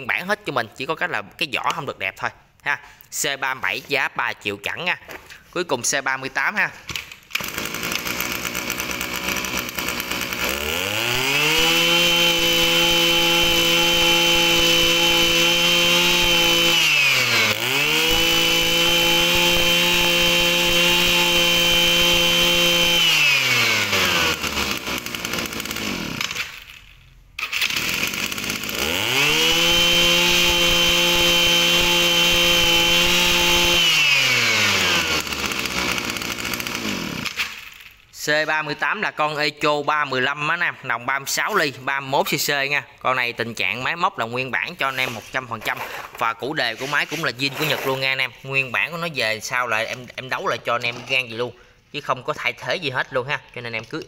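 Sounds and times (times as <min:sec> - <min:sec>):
brush cutter engine revving: 0:07.3 - 0:26.8, 0:27.4 - 0:37.8, 0:43.6 - 0:51.1.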